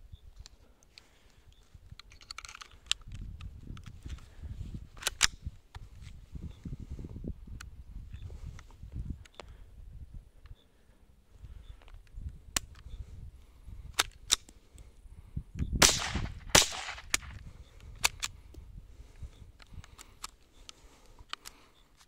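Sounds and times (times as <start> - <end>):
light sharp clicks: 15.6 - 22.0
rifle shots with echo: 15.8 - 17.3.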